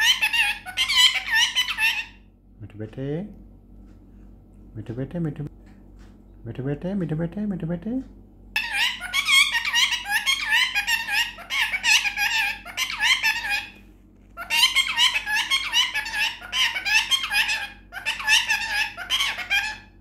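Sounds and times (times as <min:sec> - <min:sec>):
parakeet chattering: 0:00.0 - 0:02.3, 0:08.6 - 0:13.8, 0:14.4 - 0:20.0.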